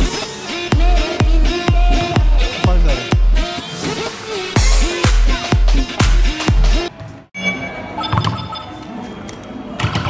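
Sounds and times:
dance music with heavy beat: 0.0 - 6.9
arcade machine electronic tones: 7.4 - 9.2.

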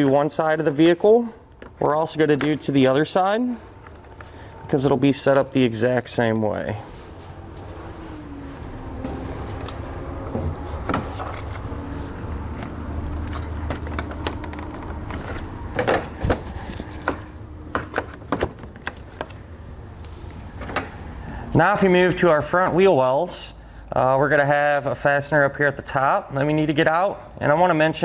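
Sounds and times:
plastic fasteners clicking: 12.5 - 16.4.

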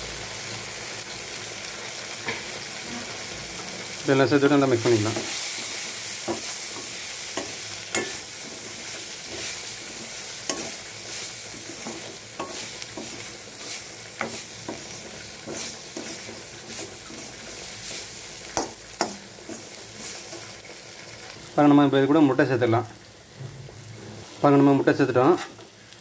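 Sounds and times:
vegetables sizzling in a pan: 0.0 - 26.0
metal spatula scraping a pan: 4.8 - 20.6, 25.2 - 25.6.

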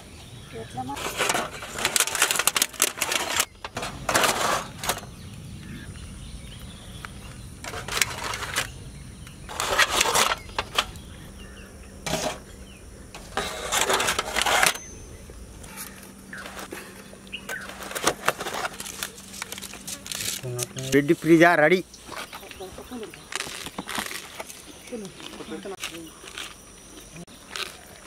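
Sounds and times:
foil trays crinkling and rattling: 0.8 - 5.1, 7.6 - 8.7, 9.5 - 11.0, 13.2 - 14.8, 15.7 - 21.5.

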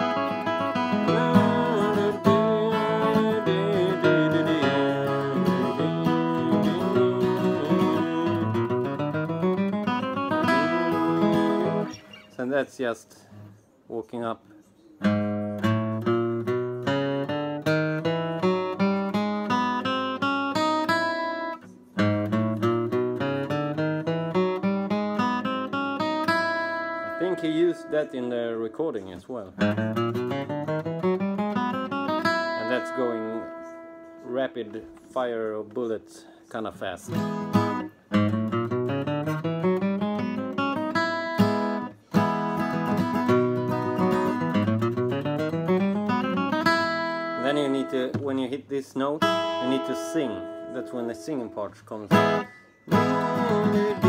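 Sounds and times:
acoustic guitar flatpicked: 0.0 - 12.6, 15.0 - 54.0.

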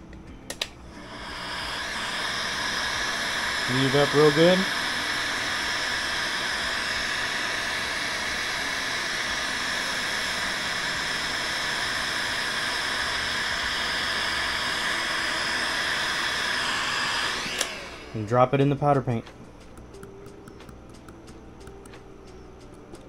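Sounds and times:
heat gun blowing air: 0.9 - 18.6.

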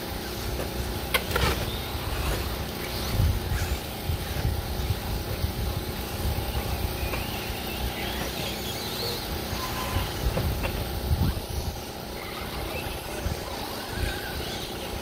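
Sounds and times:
electric rc cars whining: 0.0 - 15.0
wind rumble on microphone: 1.4 - 8.3, 9.2 - 15.0.

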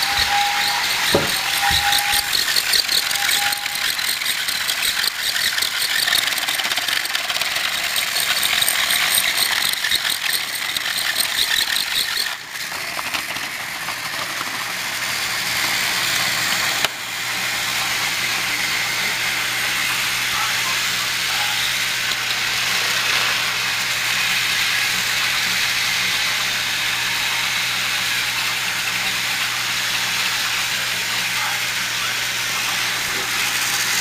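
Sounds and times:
held tone: 0.0 - 4.2
toy trains whirring and rattling: 0.0 - 34.0.

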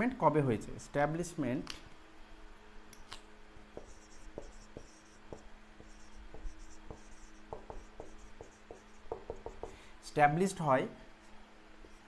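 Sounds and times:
marker tapping on whiteboard: 3.7 - 9.8
marker squeaking on whiteboard: 3.8 - 9.7.

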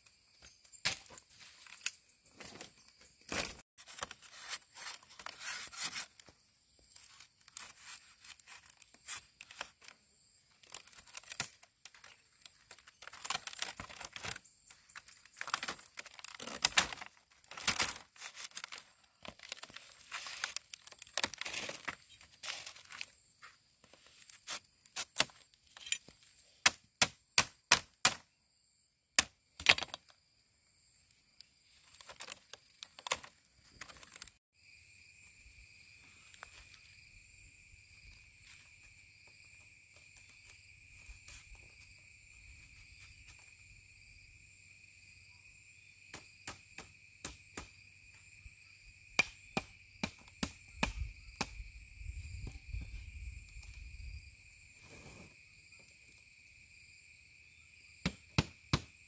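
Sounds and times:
bamboo and wood tearing and cracking: 3.3 - 23.2, 23.9 - 28.2, 31.8 - 34.4.

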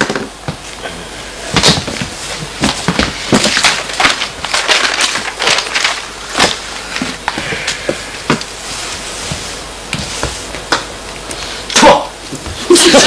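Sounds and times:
papers rustling and crinkling: 1.6 - 11.2.

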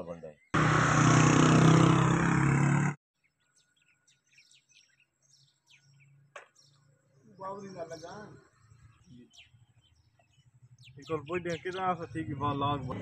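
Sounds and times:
engine-like drone: 0.6 - 3.0
faint bird chirps: 3.2 - 12.6.

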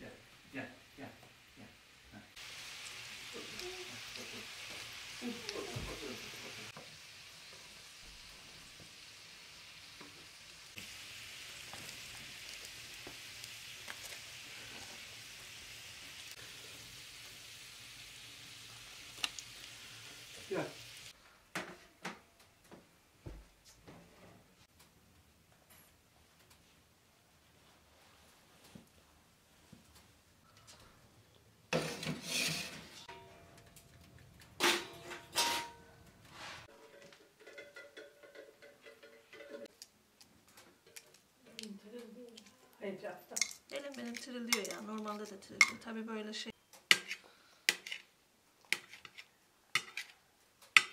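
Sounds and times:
oil sizzling in a frying pan: 0.1 - 21.2, 43.3 - 45.9
oven door scraping open: 31.8 - 33.1
metal tray sliding out: 31.8 - 33.2.

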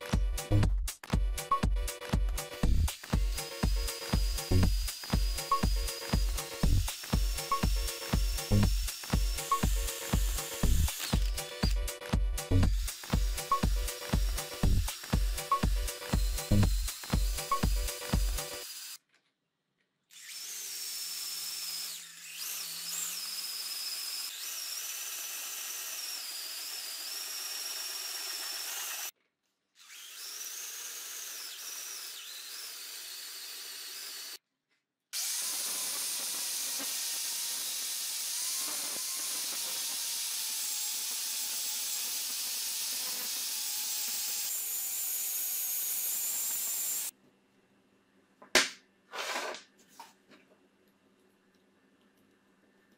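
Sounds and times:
electric drill boring through steel: 2.9 - 12.0, 12.6 - 19.0, 20.1 - 29.1, 29.8 - 34.4, 35.2 - 47.1.

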